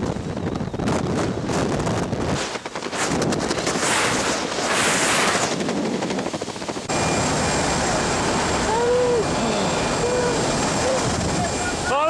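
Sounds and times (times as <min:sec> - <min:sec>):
wind buffeting microphone: 0:00.0 - 0:06.9
plane cabin drone: 0:00.0 - 0:12.0.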